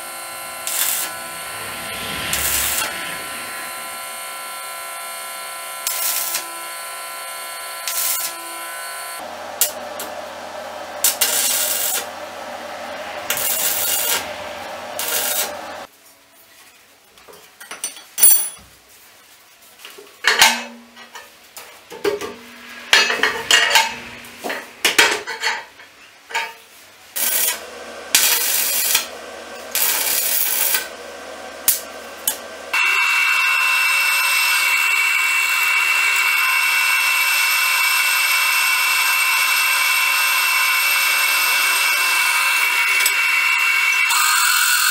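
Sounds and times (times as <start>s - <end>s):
arc welding crackle: 0.0s - 15.9s, 26.3s - 44.9s
drill press drilling steel: 0.0s - 15.9s, 27.2s - 44.9s
metal knocks and scrapes: 19.9s - 26.7s.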